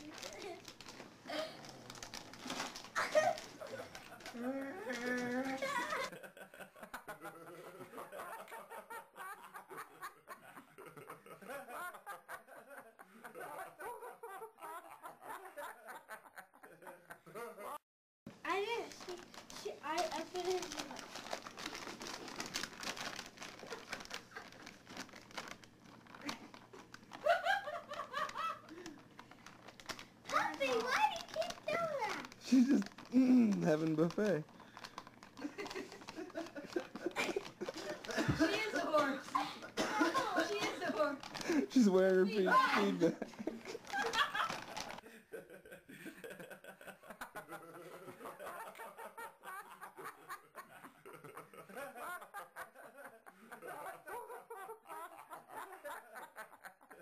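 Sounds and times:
snack bag crackling and rustling: 0.0s - 6.1s, 18.5s - 45.0s
dog eating from a canister: 28.2s - 42.2s
person snickering: 35.4s - 38.7s.

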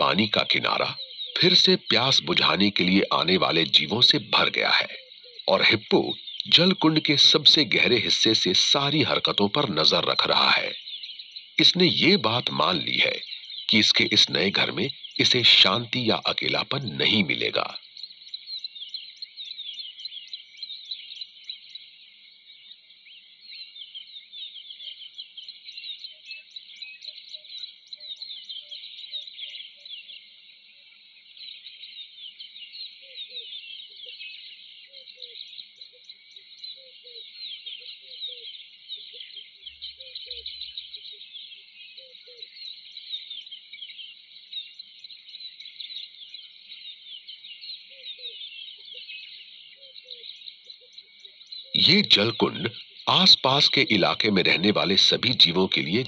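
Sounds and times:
low pulsing call: 0.0s - 10.8s
birds and insects chirping: 0.0s - 56.0s.

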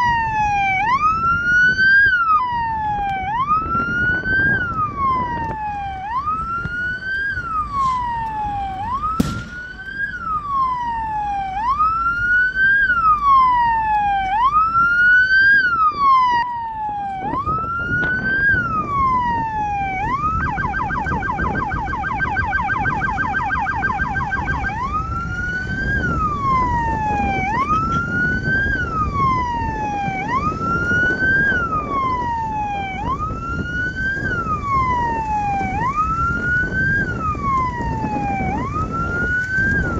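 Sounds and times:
electronic siren wailing and yelping: 0.0s - 39.9s.

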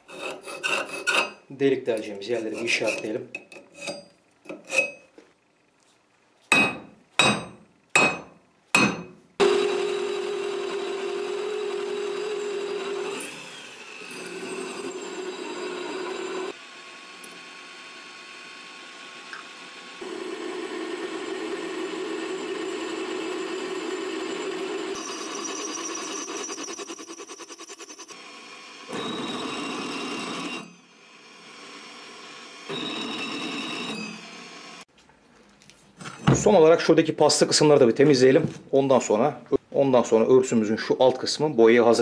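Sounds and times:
hammer strikes on steel: 6.5s - 9.2s
drill press drilling steel: 9.4s - 34.9s.

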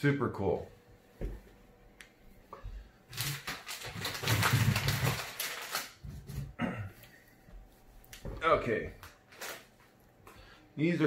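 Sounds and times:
rummaging rustling and clattering: 3.1s - 6.6s, 8.1s - 9.7s.

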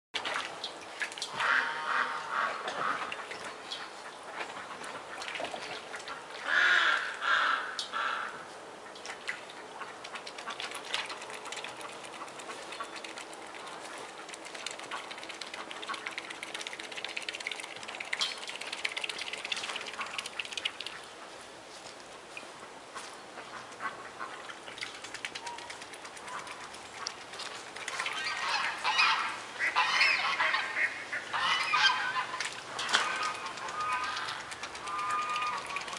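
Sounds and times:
swan honking: 28.2s - 32.4s.

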